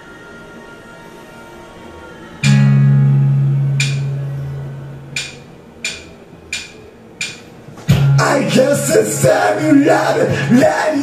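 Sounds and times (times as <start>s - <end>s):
low backing music: 0.0s - 11.0s
strummed guitar chord ringing: 2.4s - 6.0s, 7.9s - 10.7s
sharp percussive hits: 3.8s - 4.2s, 5.2s - 8.4s.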